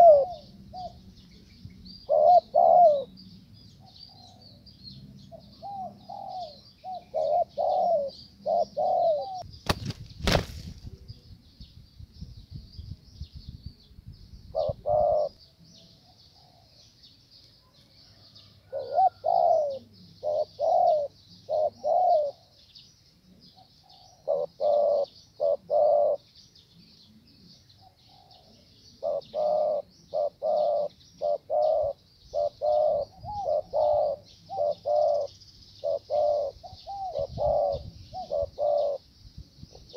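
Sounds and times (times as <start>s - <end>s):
doves cooing: 0.0s - 9.4s, 14.5s - 16.8s, 17.7s - 22.6s, 23.4s - 26.3s, 27.1s - 39.1s
wings fluttering: 9.6s - 11.0s
steady high-pitched hiss: 19.2s - 39.9s.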